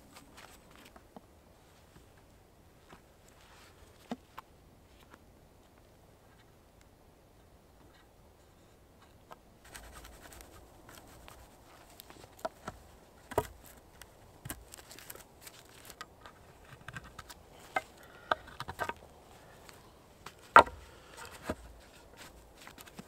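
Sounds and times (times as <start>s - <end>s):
knife scraping and shaving wood: 9.7s - 23.0s.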